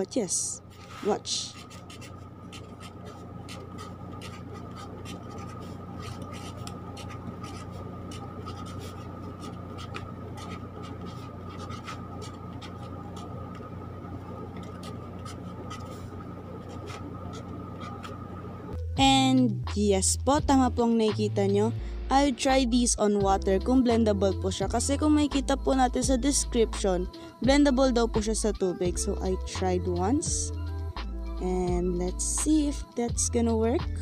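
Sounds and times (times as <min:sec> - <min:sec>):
faint steady hum: 0:00.0 - 0:28.3
pen scratching on paper: 0:00.7 - 0:18.4.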